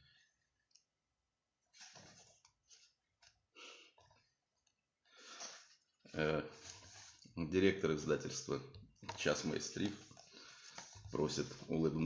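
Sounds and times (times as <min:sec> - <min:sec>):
book pages rustling: 0:01.7 - 0:03.4, 0:06.5 - 0:07.3, 0:08.8 - 0:12.0.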